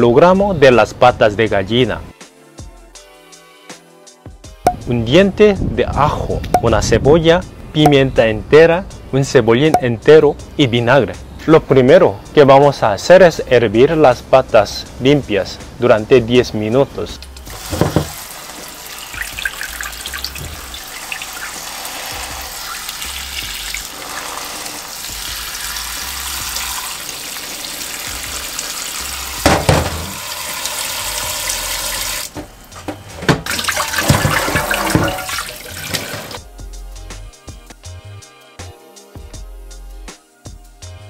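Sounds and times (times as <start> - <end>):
tap water running into bowl: 17.4 - 32.3, 33.4 - 36.4
water splash: 33.5 - 36.4.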